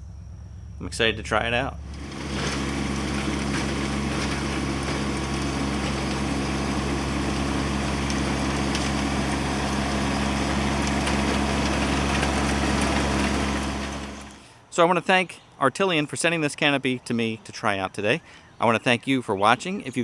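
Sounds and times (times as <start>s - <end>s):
tractor diesel engine under load: 1.0s - 14.6s.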